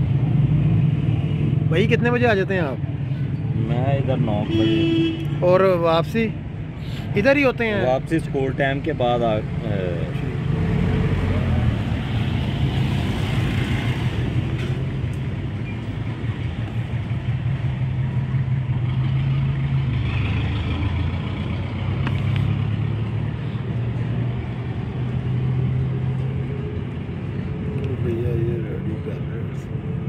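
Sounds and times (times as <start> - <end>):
street noise: 0.0 - 30.0
vehicle engine droning: 6.6 - 30.0.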